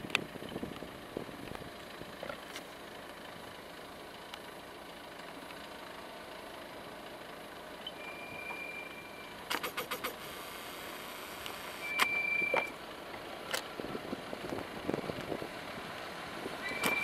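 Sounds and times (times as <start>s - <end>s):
tractor running: 0.0s - 17.0s
thin steady whistle: 7.8s - 9.4s, 11.8s - 12.7s, 16.6s - 17.0s.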